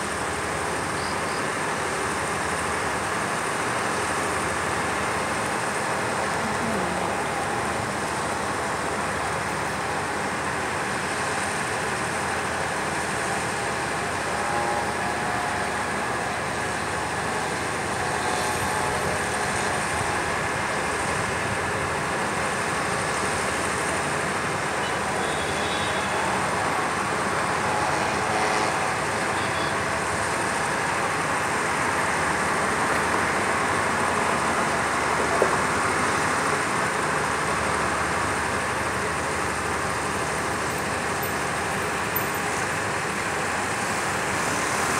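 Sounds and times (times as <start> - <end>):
distant road traffic hum: 0.0 - 44.9.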